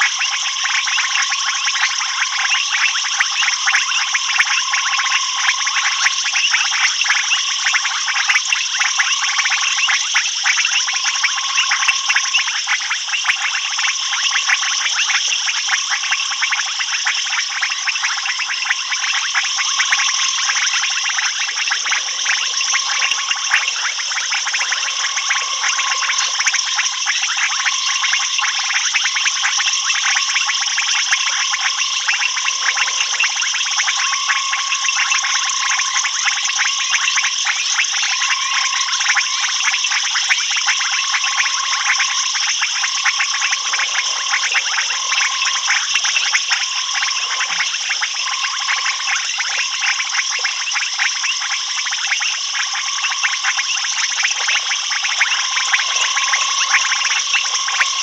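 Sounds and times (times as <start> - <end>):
frogs and insects trilling: 0.0 - 58.0
low short frog call: 18.1 - 51.3, 52.4 - 58.0.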